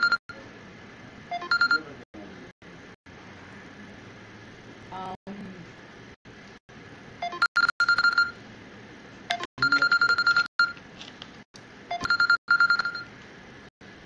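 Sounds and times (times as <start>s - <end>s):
trilling phone ringtone: 0.0s - 0.2s, 1.3s - 1.9s, 7.2s - 8.4s, 9.3s - 10.8s, 11.9s - 13.1s.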